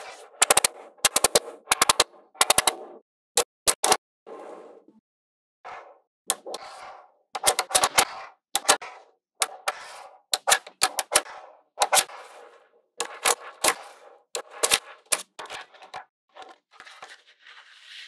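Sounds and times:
magnetic balls clicking together: 0.4 - 2.8.

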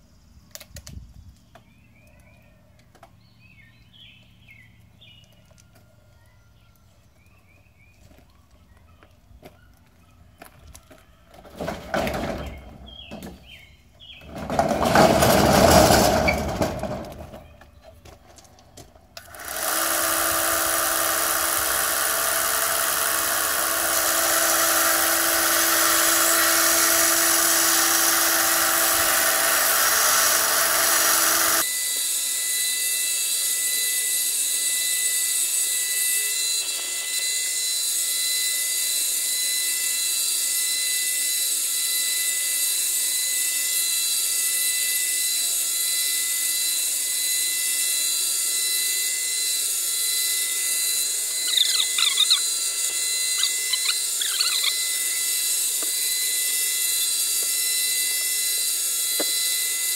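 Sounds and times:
bench sander motor whine: 18.8 - 59.9.

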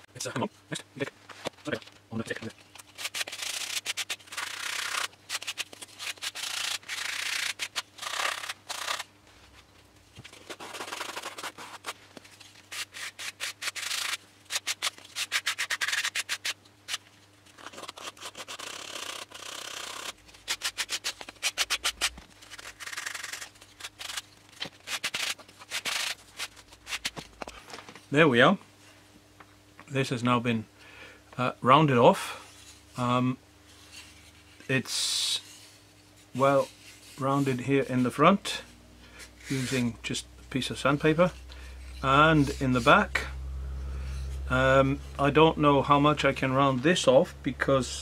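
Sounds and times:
sandpaper rubbing on wood: 3.0 - 9.0, 10.5 - 12.0, 12.7 - 17.0, 17.6 - 24.2.

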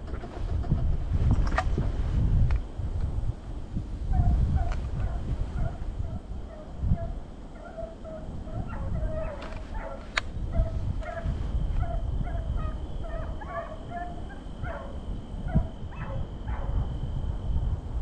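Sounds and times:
hounds baying: 4.1 - 16.9.

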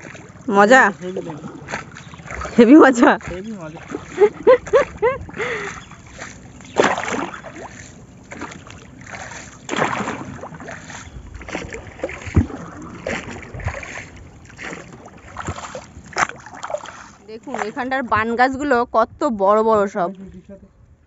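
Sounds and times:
paddle splashing in water: 0.0 - 18.4.

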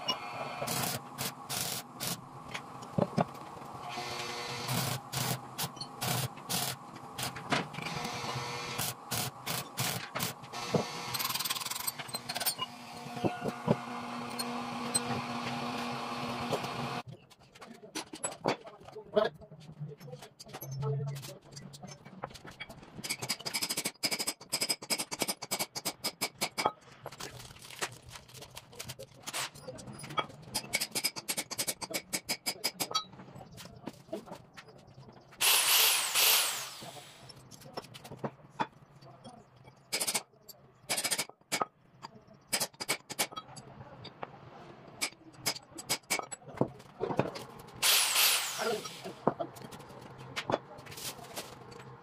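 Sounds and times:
metal parts scraping: 11.1 - 13.5.

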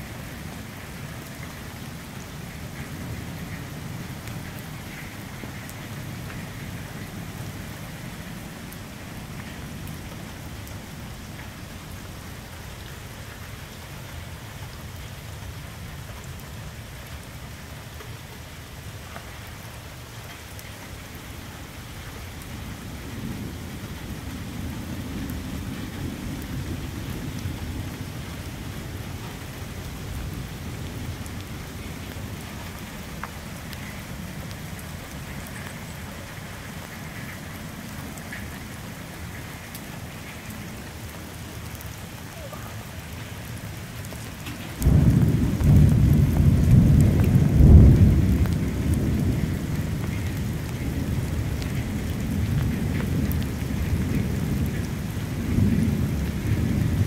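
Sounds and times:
small ticks of raindrops: 0.0 - 57.0
steady rain falling: 0.0 - 57.0.

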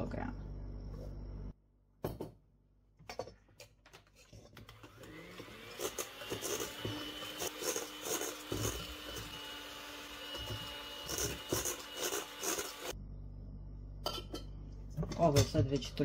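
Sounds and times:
electric mixer motor whine: 4.6 - 13.0.

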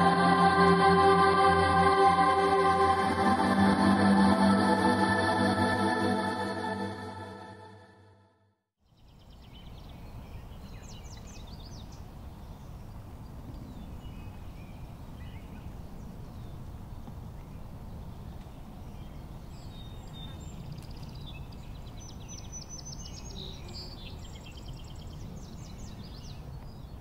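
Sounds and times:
steady low rumble: 0.0 - 7.7
ambient electronic music: 0.0 - 8.2.

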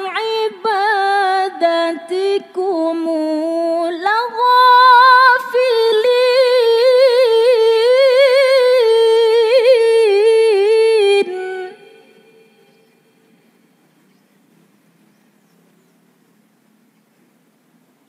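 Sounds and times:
woman reciting melodically: 0.0 - 13.2.

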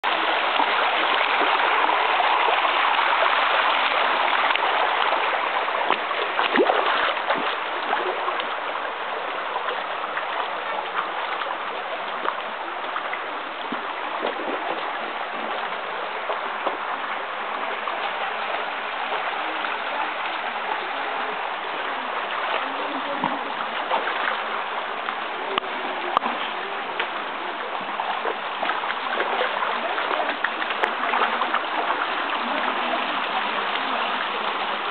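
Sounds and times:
creek water over rock: 0.0 - 34.9.

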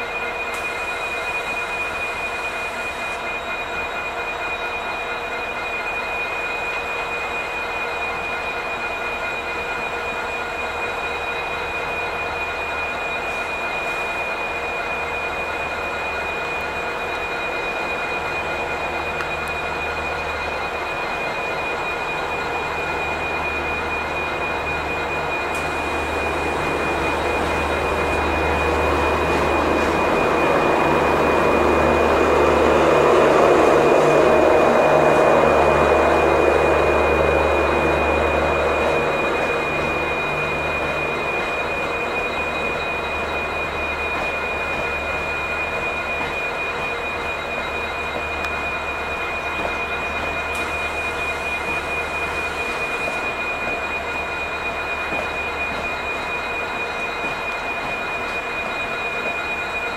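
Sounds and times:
train rumble on tracks: 0.0 - 59.9
steady high whine: 14.8 - 59.9.

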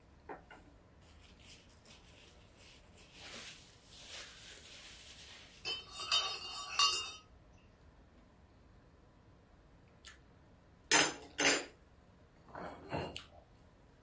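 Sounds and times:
paper napkin rustling: 1.0 - 5.7
spoon clinking in a mug: 5.6 - 7.3.

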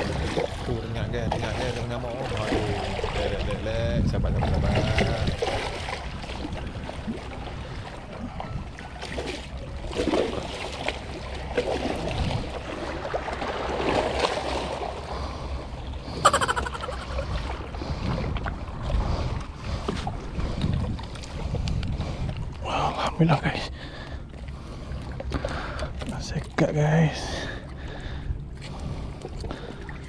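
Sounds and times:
fish thrashing in water: 16.2 - 17.7.

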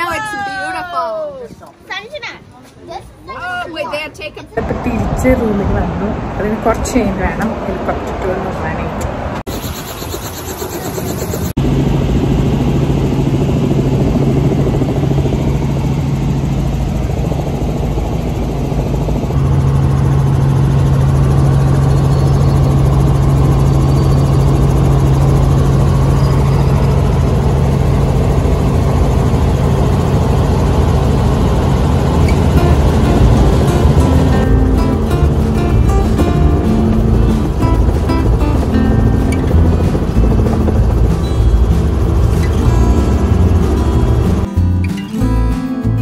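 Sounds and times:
helicopter engine and rotor drone: 9.0 - 44.6.

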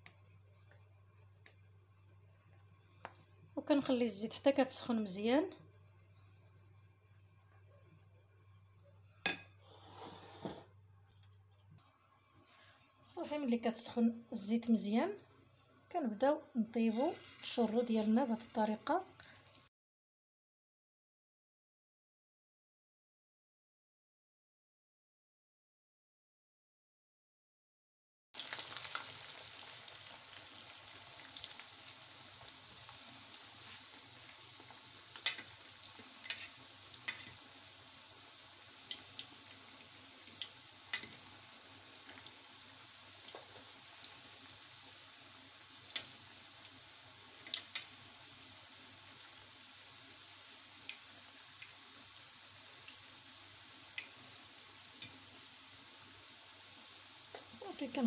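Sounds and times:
dough frying in hot oil: 16.6 - 19.7, 28.4 - 58.0.

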